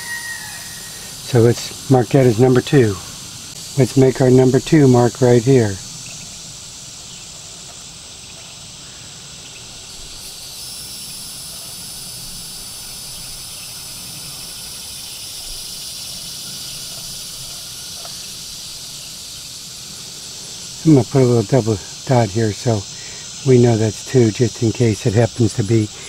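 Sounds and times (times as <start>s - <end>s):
insects chirring: 0.0s - 26.0s.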